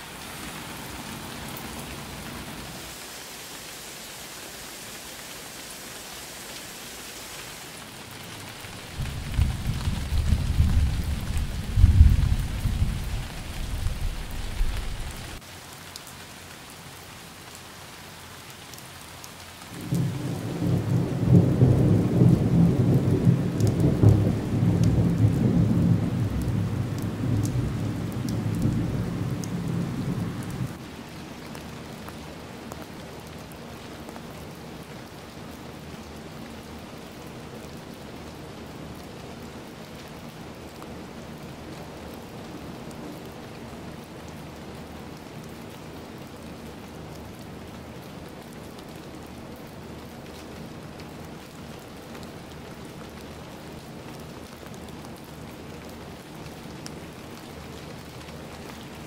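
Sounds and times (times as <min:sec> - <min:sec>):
steady rain falling: 0:00.0 - 0:59.0
low rolls of thunder: 0:08.7 - 0:15.4, 0:19.8 - 0:30.8.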